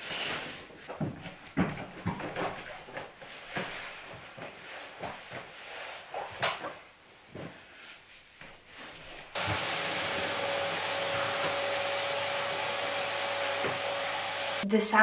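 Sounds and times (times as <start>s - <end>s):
vacuum cleaner running: 9.3s - 14.7s.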